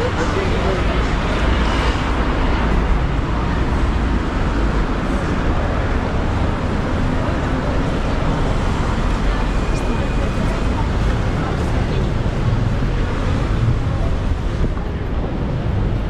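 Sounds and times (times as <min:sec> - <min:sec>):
road traffic passing: 0:00.0 - 0:16.0.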